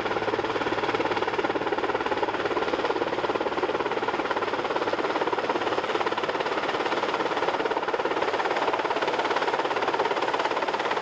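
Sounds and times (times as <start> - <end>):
helicopter rotor chopping: 0.0 - 11.0.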